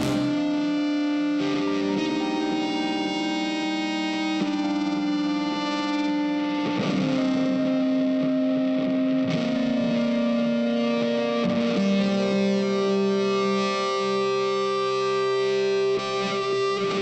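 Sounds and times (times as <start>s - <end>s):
instrumental music sustained notes: 0.0s - 4.4s.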